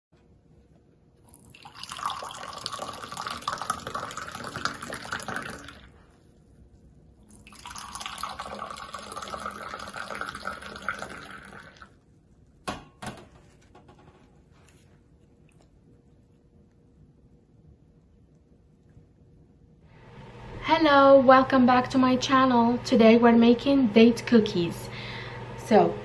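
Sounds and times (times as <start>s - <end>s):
tea pouring into a glass: 1.3s - 6.0s, 7.3s - 12.0s.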